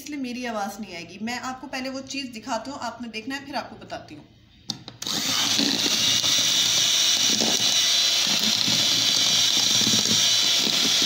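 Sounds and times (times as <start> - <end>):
electric hand mixer running: 5.0 - 11.0.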